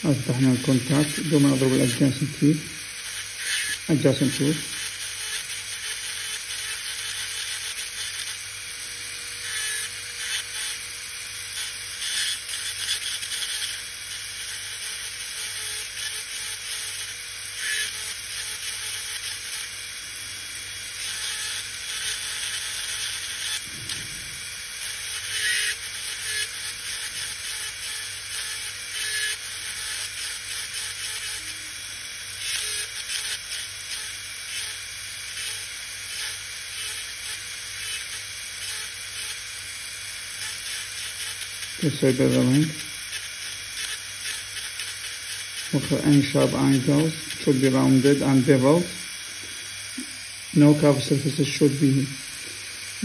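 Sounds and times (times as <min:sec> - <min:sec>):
dental drill cutting tooth: 0:00.0 - 0:53.0.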